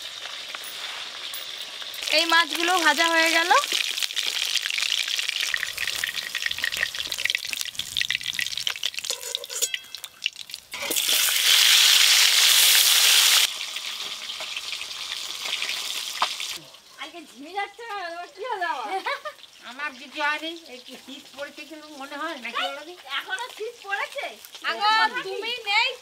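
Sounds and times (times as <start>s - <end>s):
fish frying in hot oil: 0.0s - 16.8s, 18.4s - 26.0s
spatula scraping and clinking: 9.0s - 10.2s.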